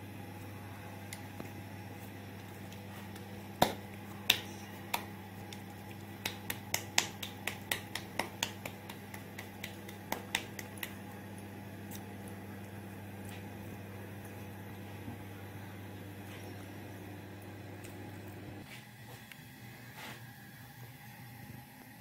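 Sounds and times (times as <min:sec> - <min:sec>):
hands slapping dough: 0:02.4 - 0:11.2.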